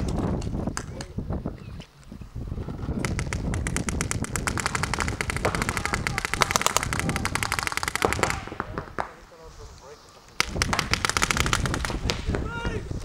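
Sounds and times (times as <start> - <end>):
paintball markers firing: 3.0 - 9.2, 10.3 - 12.4.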